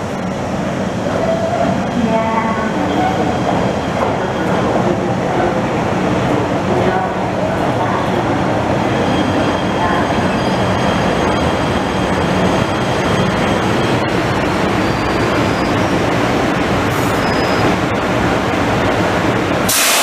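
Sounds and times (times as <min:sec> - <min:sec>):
subway train rumbling: 0:00.0 - 0:20.0
faint wheel squeals: 0:17.1 - 0:17.7.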